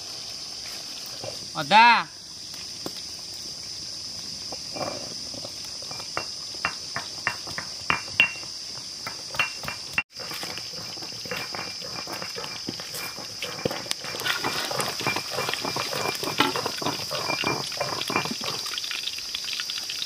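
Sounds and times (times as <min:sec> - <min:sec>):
insects droning: 0:00.0 - 0:20.0
stone pestle knocking on stone: 0:05.9 - 0:10.0.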